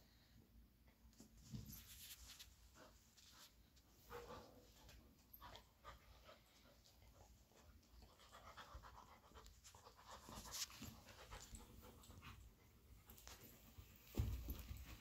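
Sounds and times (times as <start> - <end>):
dogs scuffling and mouthing: 1.1 - 15.0
dogs panting: 4.0 - 13.3.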